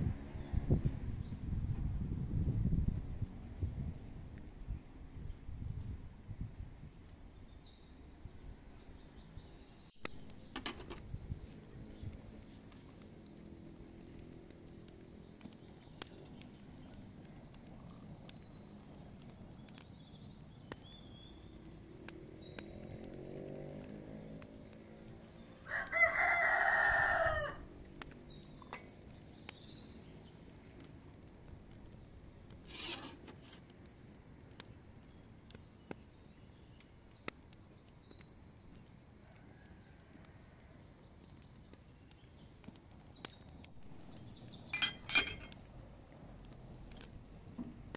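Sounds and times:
small birds chirping: 6.4 - 47.9
rooster crowing: 25.6 - 27.7.

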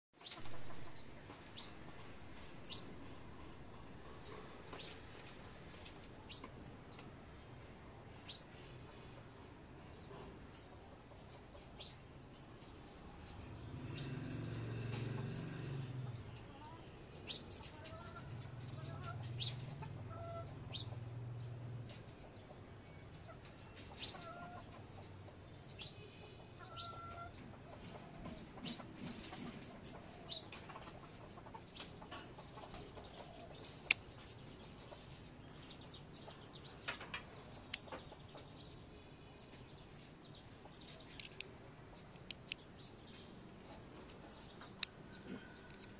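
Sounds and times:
birds chirping and clucking: 0.2 - 45.9
sharp clicks: 41.1 - 43.3.

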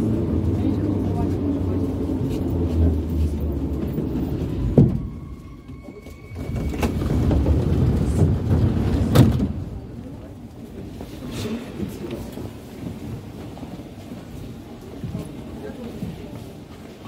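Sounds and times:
train stopping with clunk: 0.0 - 10.1
metro train arriving: 0.0 - 17.0
sliding doors knocking open: 6.3 - 10.0.

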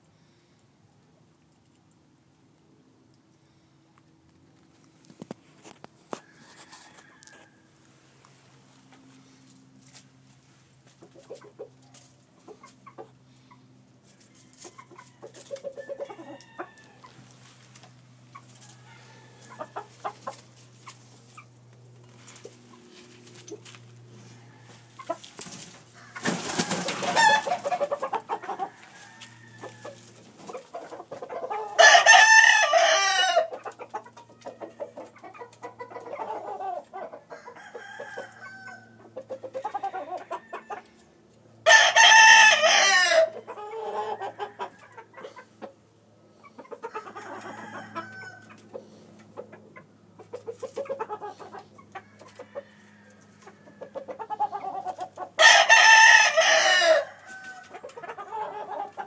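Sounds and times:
chicken clucks and calls: 0.1 - 59.0
rooster crowing: 6.1 - 7.8, 18.6 - 19.9, 25.9 - 27.7, 28.5 - 30.0, 31.6 - 33.5, 37.3 - 39.0, 39.6 - 41.0, 41.6 - 44.8, 46.9 - 48.5, 52.0 - 54.0, 55.4 - 57.8.

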